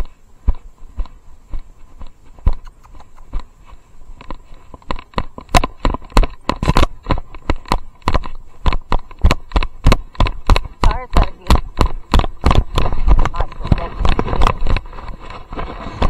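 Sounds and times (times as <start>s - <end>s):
camera rattling in harness: 4.2s - 16.0s.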